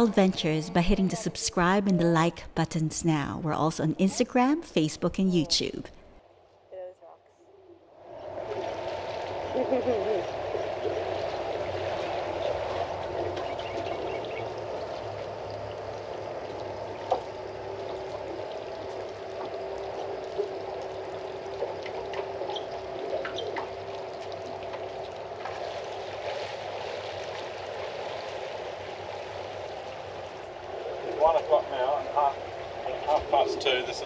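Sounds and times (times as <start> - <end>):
faint steady hum: 0.0 - 34.0
small ticks and splashes: 8.6 - 31.2.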